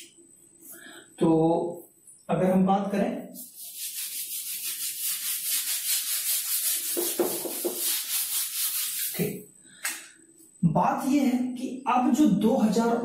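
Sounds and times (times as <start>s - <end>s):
eraser rubbing on whiteboard: 3.4s - 9.3s.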